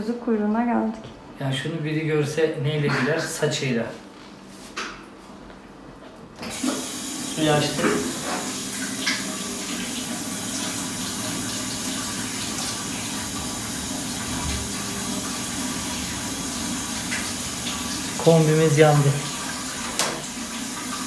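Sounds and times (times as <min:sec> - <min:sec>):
water running from a tap: 0:06.5 - 0:21.0.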